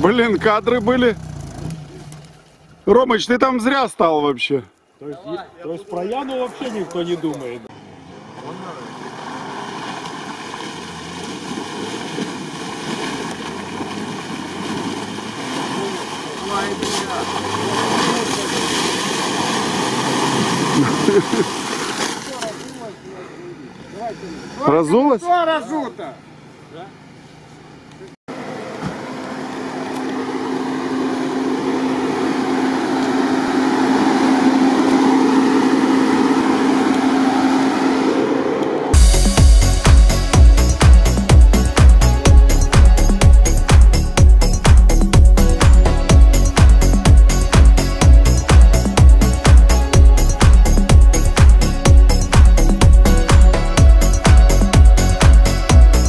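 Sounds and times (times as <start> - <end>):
car engine running under load: 0.0 - 2.9, 7.3 - 21.4, 26.2 - 56.0
water and mud splashing: 1.2 - 3.1, 8.2 - 23.2.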